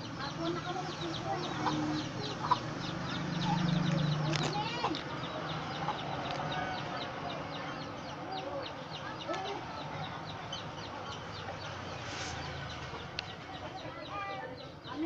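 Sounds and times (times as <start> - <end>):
chickens clucking: 0.0 - 15.0
high quick chirps: 11.1 - 13.4.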